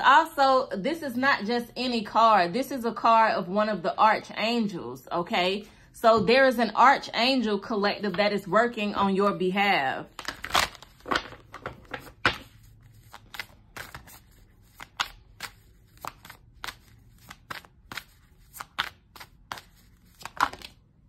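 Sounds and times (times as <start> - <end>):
cards being shuffled: 10.1 - 20.9.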